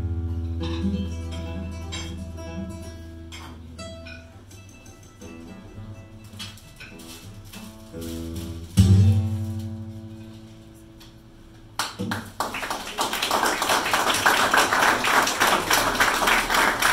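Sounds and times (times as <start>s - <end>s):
classical guitar chord: 0.0s - 4.4s
audience applause: 11.8s - 16.9s.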